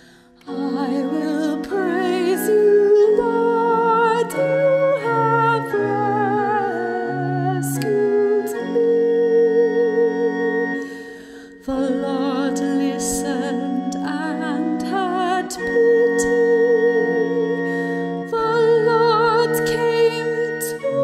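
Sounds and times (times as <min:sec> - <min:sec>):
church organ chords: 0:00.0 - 0:21.0
person singing with vibrato: 0:00.0 - 0:21.0.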